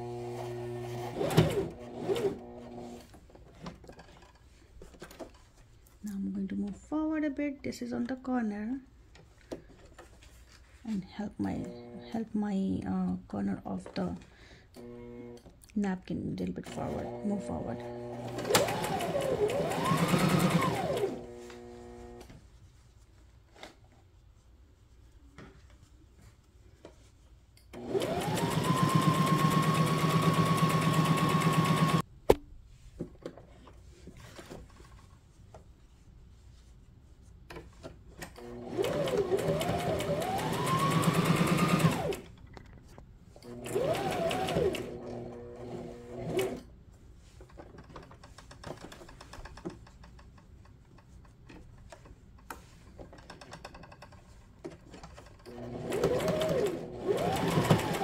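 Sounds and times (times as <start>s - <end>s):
sewing machine motor whine: 0.0s - 3.0s, 17.0s - 22.2s, 27.8s - 32.0s, 38.4s - 42.2s, 43.4s - 46.6s, 55.5s - 58.0s.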